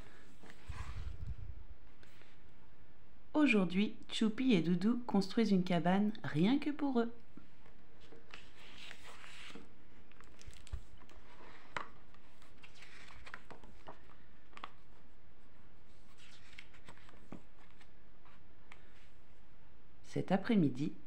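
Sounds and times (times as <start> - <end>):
soft paper rustles: 0.0 - 2.6, 7.3 - 19.4.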